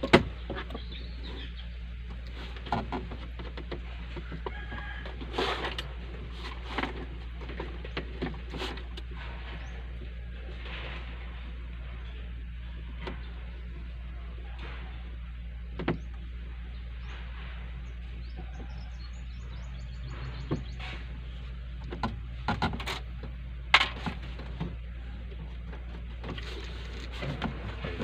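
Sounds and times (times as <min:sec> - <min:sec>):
low hum: 0:00.0 - 0:28.0.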